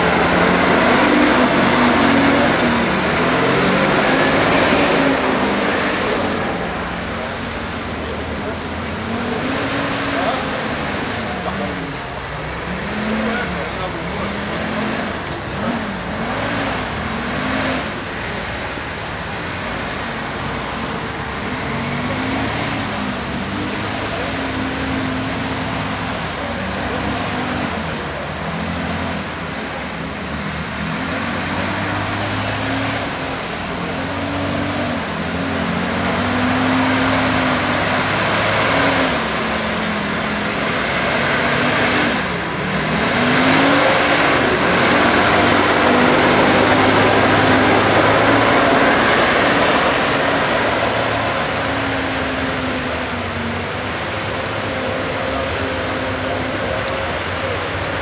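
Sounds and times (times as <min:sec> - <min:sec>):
diesel engine revving: 0:00.0 - 0:58.0.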